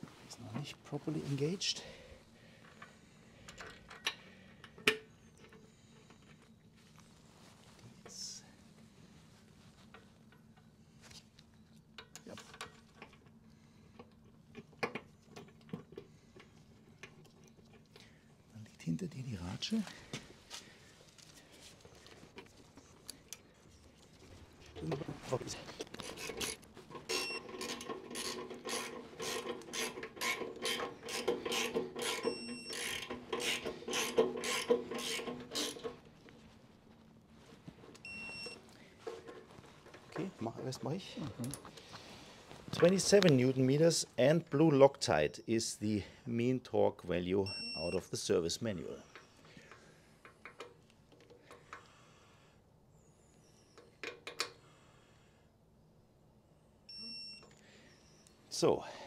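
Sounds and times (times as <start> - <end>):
ratchet wrench clicking: 26.2 - 35.9
metal clicks and taps on bolts: 50.2 - 51.9, 53.8 - 54.6.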